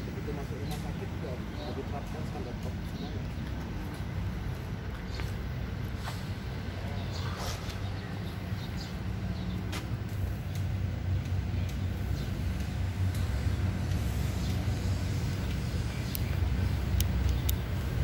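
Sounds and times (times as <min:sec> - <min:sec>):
low outdoor rumble: 0:00.0 - 0:18.0
faint clicks: 0:09.8 - 0:14.6, 0:15.4 - 0:17.8.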